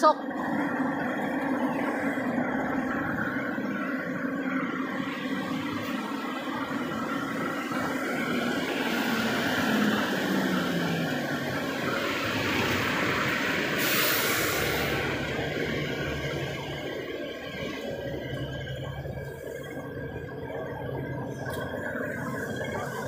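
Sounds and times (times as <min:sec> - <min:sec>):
bus diesel engine droning: 0:00.0 - 0:23.0
street traffic noise: 0:00.0 - 0:23.0
air brakes hissing: 0:13.7 - 0:15.3.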